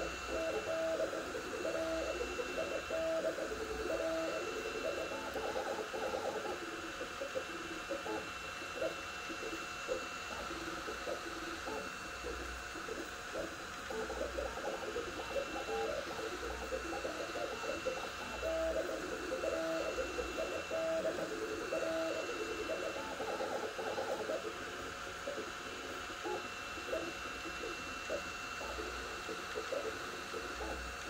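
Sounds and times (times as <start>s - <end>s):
cooling fans whirring: 0.0s - 31.0s
stepper motors whining in notes: 12.7s - 31.0s.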